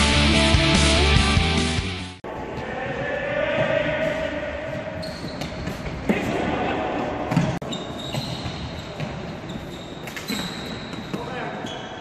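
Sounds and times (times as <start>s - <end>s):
music: 0.0s - 2.2s
shoes squeaking on floor: 3.7s - 6.2s, 7.3s - 12.0s.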